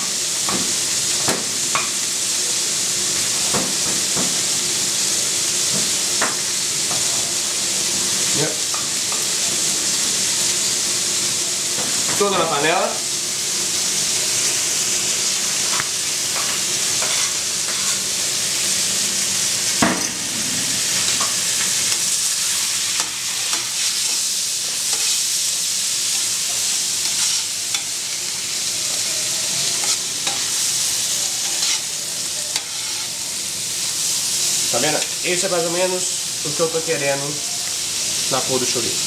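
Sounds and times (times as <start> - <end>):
food sizzling in a pan: 0.0 - 39.0
spatula scraping and knocking pan: 16.4 - 18.0.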